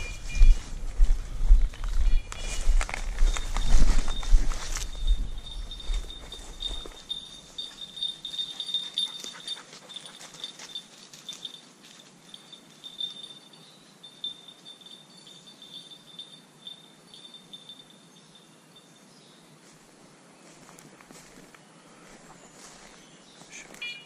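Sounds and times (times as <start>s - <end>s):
high-pitched collar beep: 0.0s - 0.7s
footsteps in dry bracken: 0.0s - 10.8s, 19.6s - 24.0s.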